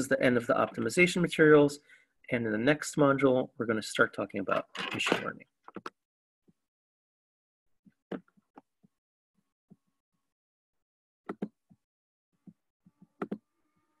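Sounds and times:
mouse and keyboard clicks: 13.2 - 13.4.

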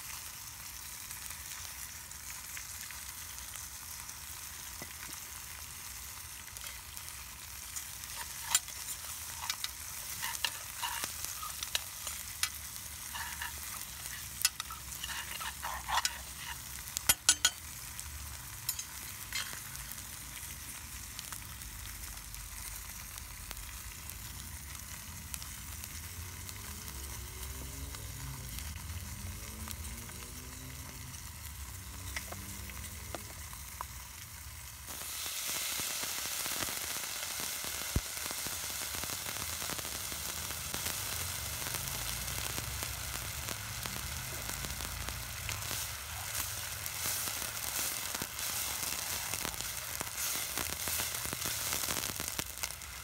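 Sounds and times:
rice sizzling in a pot: 0.0 - 53.0
liquid hissing in hot pot: 6.2 - 20.4, 34.7 - 53.0
metal spoon scraping a pot: 7.8 - 17.7, 18.7 - 19.6.

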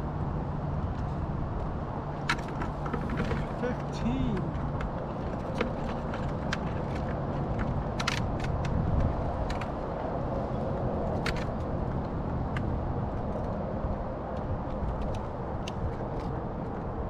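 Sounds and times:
wind buffeting microphone: 0.3 - 17.0
clicks and knocks of gear: 0.9 - 13.7, 14.3 - 17.0.

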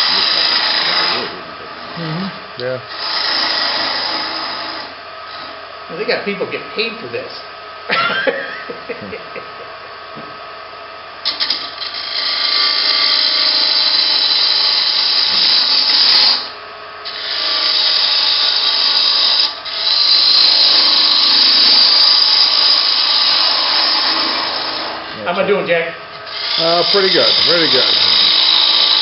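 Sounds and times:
gouge cutting wood on lathe: 0.0 - 2.1, 2.9 - 5.6, 11.2 - 29.0.

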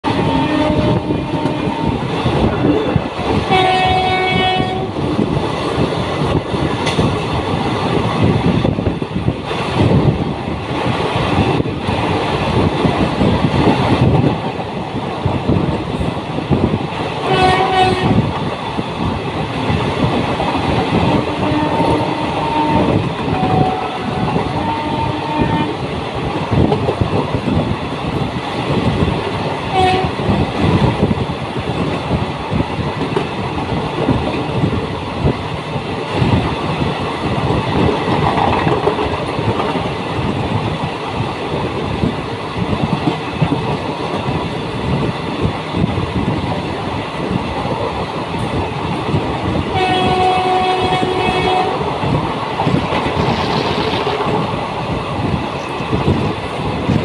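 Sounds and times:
train horn: 0.0 - 2.0, 3.5 - 5.0, 17.2 - 18.2, 21.0 - 25.8, 29.7 - 30.2, 49.7 - 51.9
train wheels clattering on rails: 0.0 - 57.0
wind rushing: 0.0 - 57.0.

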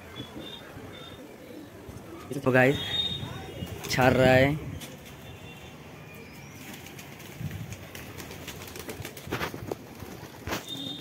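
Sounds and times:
pigeons cooing: 0.0 - 2.4
pigeons flapping wings: 6.5 - 11.0.

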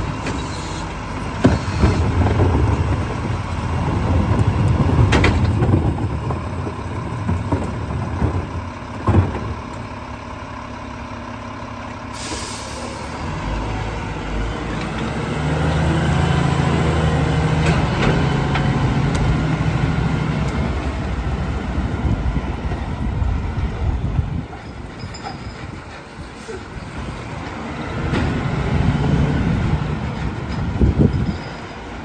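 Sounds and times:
diesel engine revving: 0.0 - 24.5, 26.4 - 32.0
sharp air hiss: 12.2 - 13.1.

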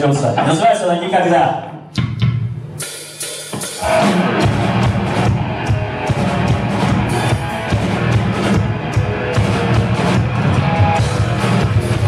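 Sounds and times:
drum and cymbal strokes: 2.4 - 12.0
live metal band playing: 2.8 - 12.0.

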